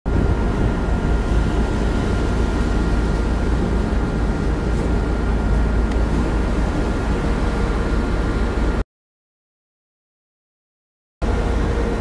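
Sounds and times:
ship low rumble: 0.1s - 8.8s, 11.2s - 12.0s.

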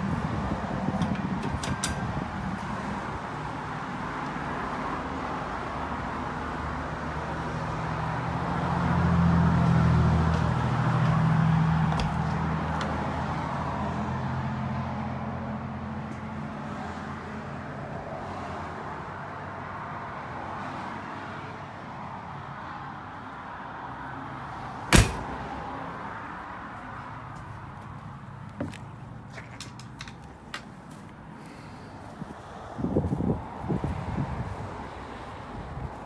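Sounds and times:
vehicle engine humming: 22.3s - 36.0s.

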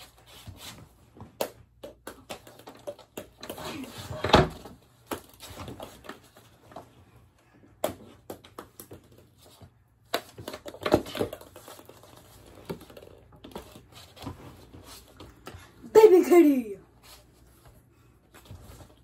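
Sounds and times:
plastic balls bouncing on wood floor: 1.1s - 6.9s, 7.6s - 15.6s.

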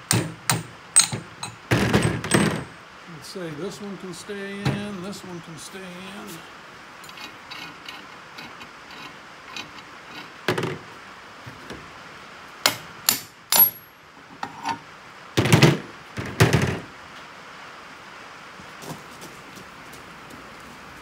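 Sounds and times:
metal clanks and knocks: 0.0s - 2.8s, 12.7s - 14.8s.

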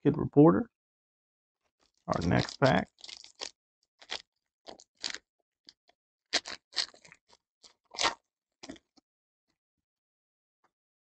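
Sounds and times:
foil wrapper crinkling and tearing: 2.1s - 5.2s, 6.4s - 7.3s.

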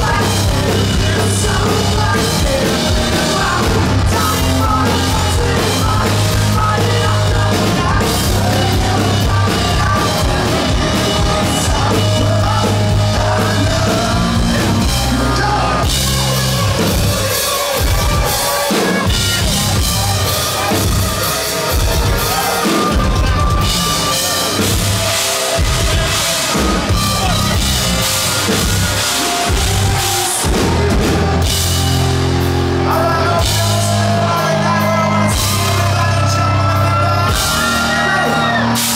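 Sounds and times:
woman singing: 0.0s - 14.6s
distorted guitar: 0.0s - 38.9s
drum kit: 0.0s - 38.9s
electric bass guitar: 0.0s - 38.9s.

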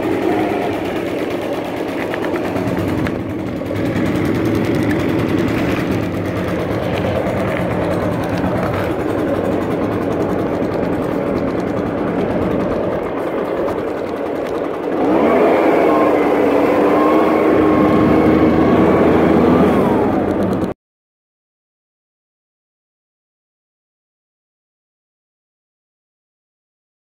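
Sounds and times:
leaf blower engine: 0.0s - 20.8s.

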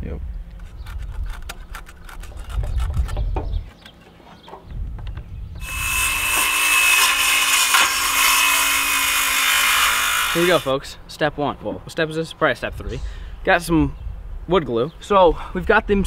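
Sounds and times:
circular saw cutting wood: 5.6s - 10.8s.

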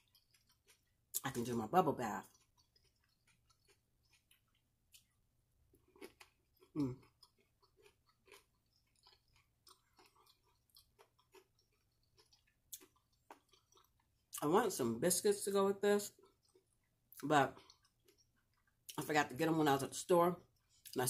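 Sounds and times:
person chewing food: 0.0s - 14.4s, 16.1s - 19.0s, 20.4s - 21.0s.

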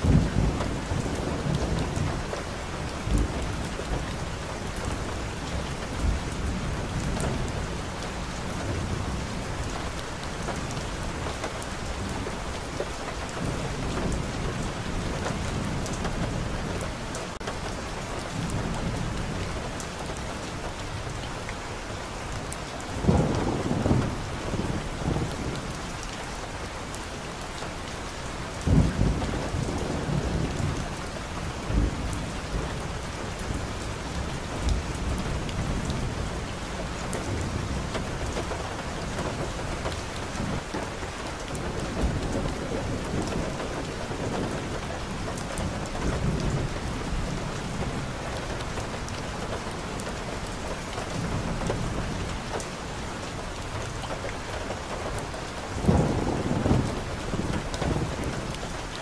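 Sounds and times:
thunder rumbling: 0.0s - 9.6s, 22.9s - 25.8s, 55.6s - 58.9s
steady rain: 0.0s - 59.0s.

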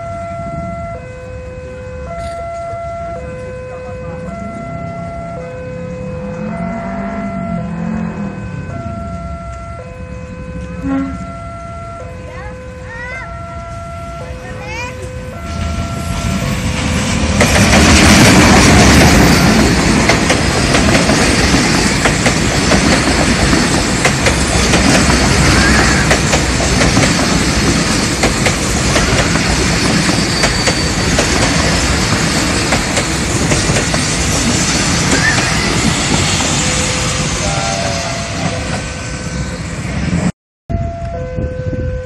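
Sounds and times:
diesel locomotive rumble: 0.0s - 42.0s
train wheels clickety-clack: 16.2s - 38.9s.

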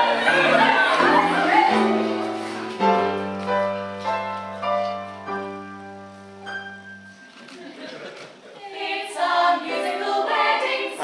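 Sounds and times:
group of voices singing: 0.0s - 2.5s, 8.6s - 11.0s
piano chords: 0.0s - 7.7s.

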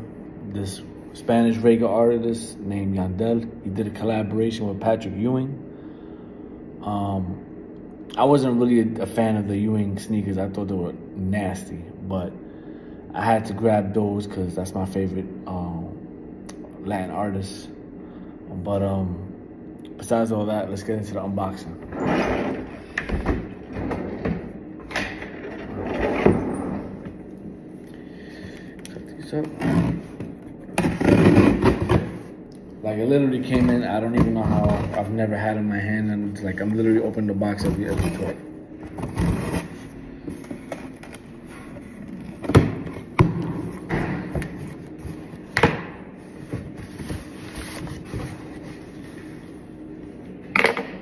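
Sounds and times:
objects scraping and rustling: 25.2s - 27.2s, 46.2s - 49.6s.

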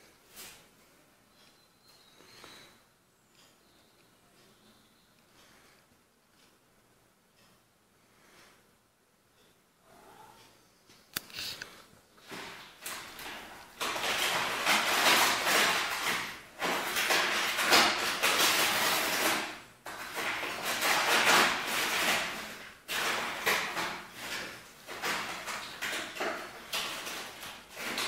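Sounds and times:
paper bag crinkling and rustling: 12.2s - 28.0s.

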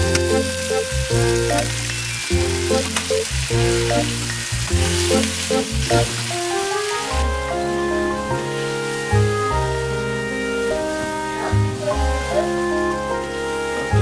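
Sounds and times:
food sizzling in a frying pan: 0.0s - 7.2s
background music with bass line: 0.0s - 14.0s.

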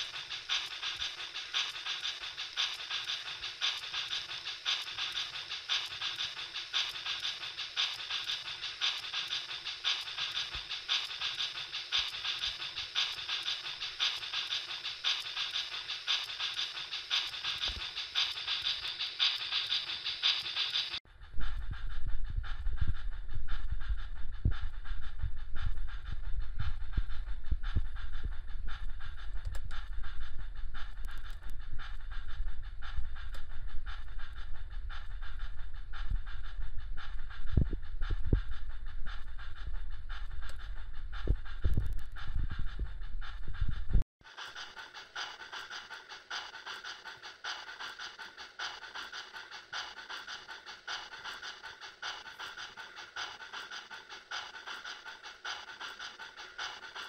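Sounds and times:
model locomotive chuffing: 0.0s - 57.0s
low mechanical rumble: 21.0s - 44.0s.

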